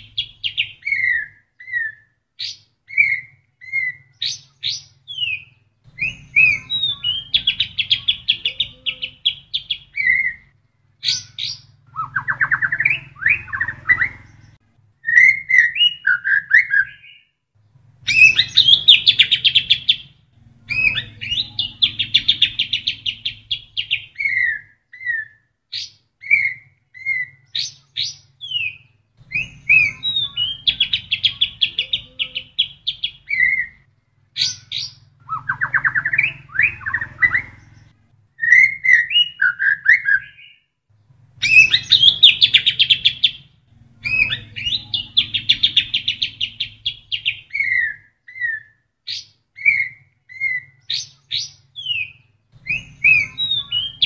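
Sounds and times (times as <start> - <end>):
bird singing trills and whistles: 0.0 - 17.3, 18.0 - 40.7, 41.4 - 54.0.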